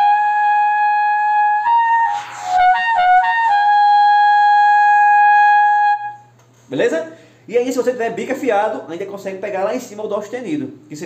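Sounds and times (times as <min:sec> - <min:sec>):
trumpet holding high note: 0:00.0 - 0:06.4.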